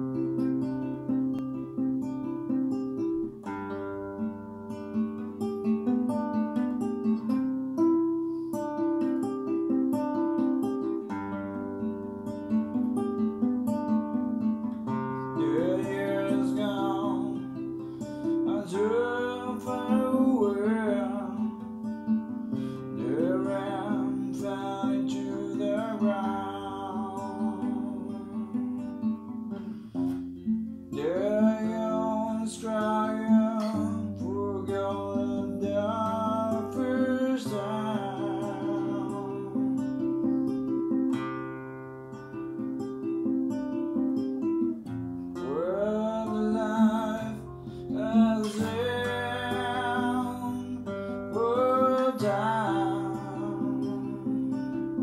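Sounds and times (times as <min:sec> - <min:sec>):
fingerpicked classical guitar: 0:00.0 - 0:55.0
person singing: 0:14.6 - 0:29.9, 0:30.9 - 0:40.9, 0:45.4 - 0:55.0.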